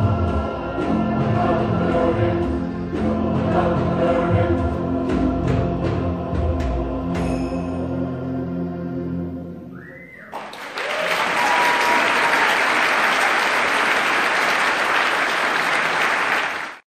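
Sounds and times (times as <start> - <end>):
audience applause: 10.2 - 16.8.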